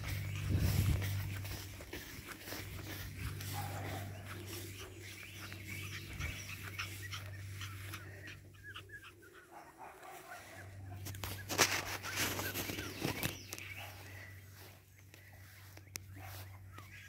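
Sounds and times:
puppies scampering through grass: 0.0s - 17.0s
steady low hum: 0.0s - 17.0s.

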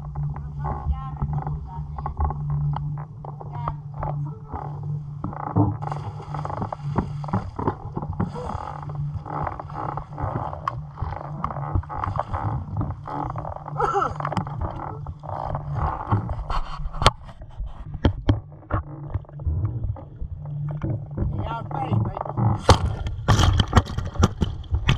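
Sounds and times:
steady low hum: 0.0s - 24.9s
water sloshing against camera: 0.0s - 24.9s
water splashes: 3.4s - 16.4s, 18.7s - 24.9s.

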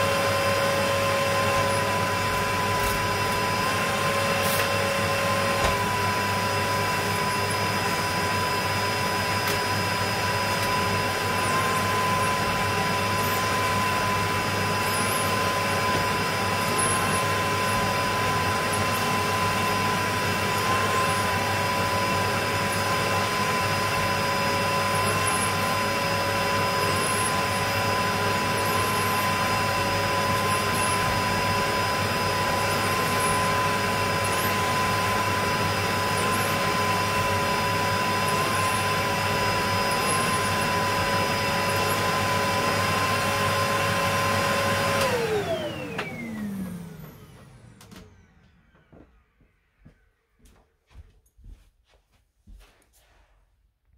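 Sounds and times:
vacuum cleaner running: 0.0s - 51.6s.

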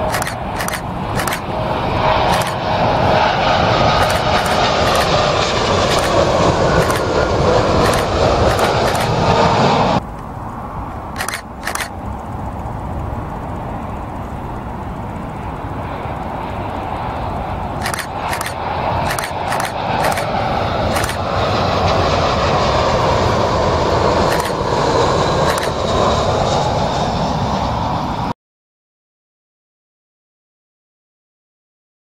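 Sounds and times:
short clicks: 0.0s - 1.5s, 2.3s - 2.6s, 4.0s - 5.2s, 5.9s - 7.1s, 7.8s - 9.2s, 10.9s - 12.0s, 17.8s - 21.3s, 24.2s - 24.6s, 25.4s - 25.8s
distant airliner jet noise: 0.0s - 28.4s
jet engine whine: 0.0s - 28.4s.

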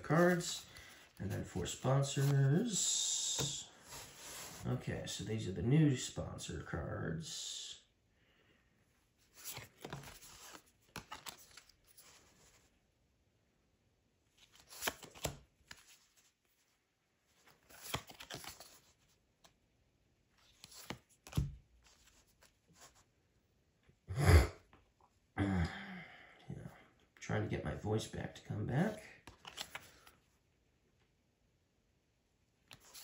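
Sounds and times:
cardboard cards rustling: 0.0s - 4.8s, 9.2s - 12.7s, 14.3s - 19.6s, 20.3s - 23.1s, 28.9s - 30.3s, 32.6s - 33.0s.

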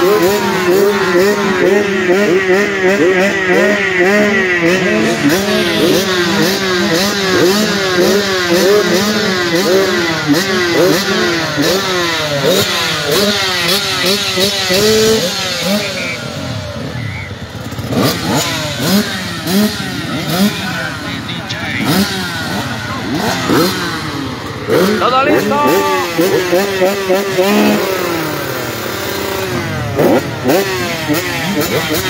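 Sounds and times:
motocross engines revving: 0.0s - 32.0s.

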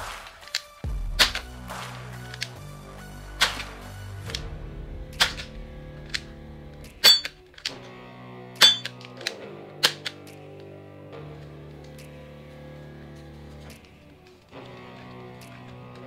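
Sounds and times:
background music: 0.0s - 16.0s
plastic toy gun clicks: 5.2s - 5.5s, 7.0s - 7.9s, 8.6s - 10.3s.

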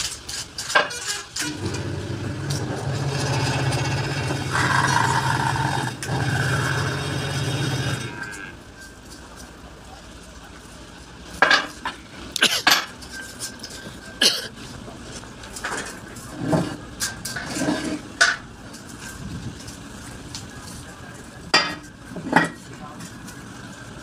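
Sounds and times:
steel parts clanking: 0.0s - 9.6s, 11.3s - 14.4s, 15.4s - 19.8s.

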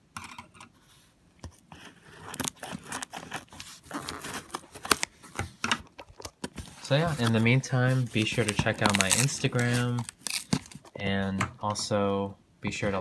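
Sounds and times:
tape and cardboard tearing: 1.7s - 5.2s, 6.1s - 10.9s.

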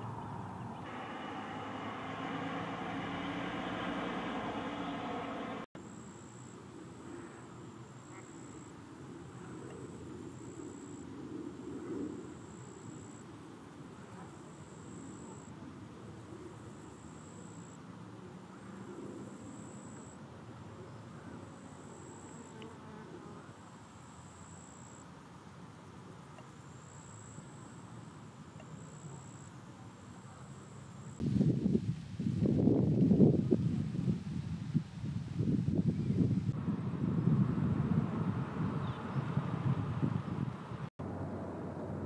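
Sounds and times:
low background rumble: 0.0s - 5.7s.

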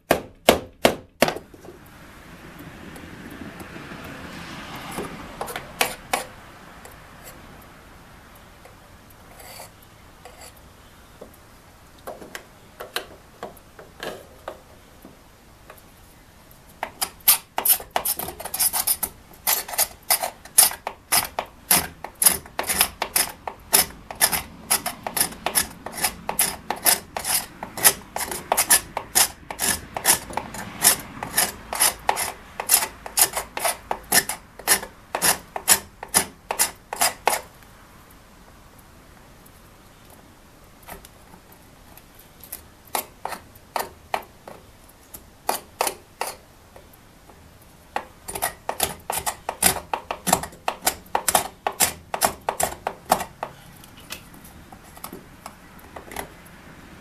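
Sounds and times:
hand tool scraping wood: 4.8s - 7.4s, 9.2s - 10.6s, 12.1s - 14.7s, 16.8s - 37.5s, 41.9s - 46.9s, 48.0s - 56.4s.

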